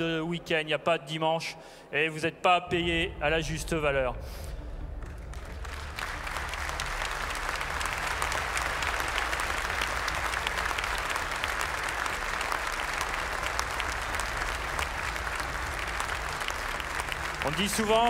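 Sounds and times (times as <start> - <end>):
audience applauding: 5.0 - 18.0.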